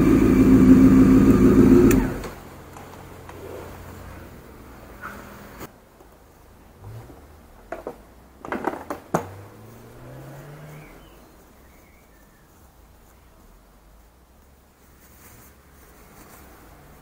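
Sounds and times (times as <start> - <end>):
faint low hum rising in pitch: 0.0 - 2.2
clicks and rattles of handling: 7.7 - 9.3.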